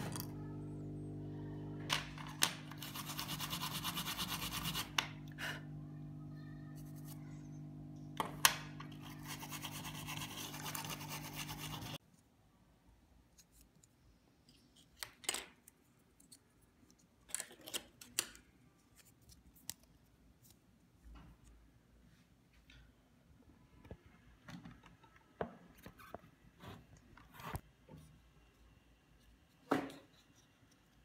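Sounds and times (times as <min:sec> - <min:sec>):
toothbrush scrubbing plastic: 0:02.7 - 0:05.0, 0:09.0 - 0:12.0.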